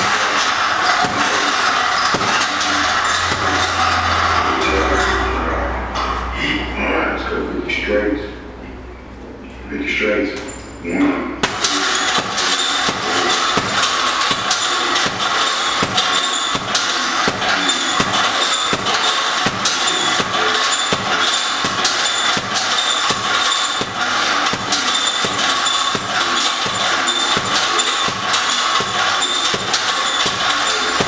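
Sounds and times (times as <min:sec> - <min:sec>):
punches thudding on heavy bag: 0:00.0 - 0:03.8, 0:11.4 - 0:31.0.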